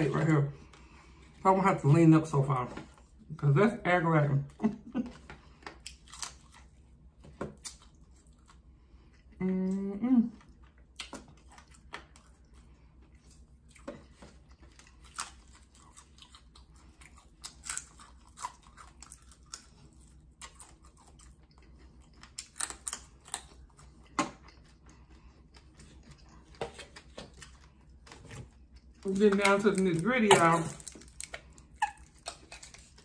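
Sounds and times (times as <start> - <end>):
chewing crispy fried fish: 4.6 - 33.0.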